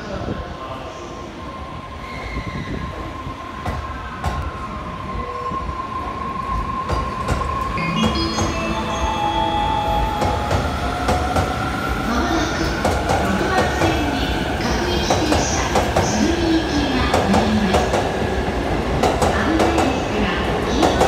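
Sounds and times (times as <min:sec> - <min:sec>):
electric train whine: 0:01.9 - 0:13.2.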